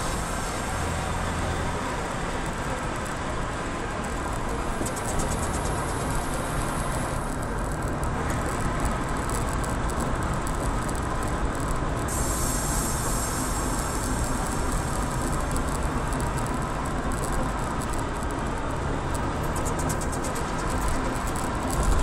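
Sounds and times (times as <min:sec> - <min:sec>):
bright hiss: 0:00.0 - 0:02.4, 0:12.0 - 0:16.7
car engine and tyre rumble: 0:00.0 - 0:22.0.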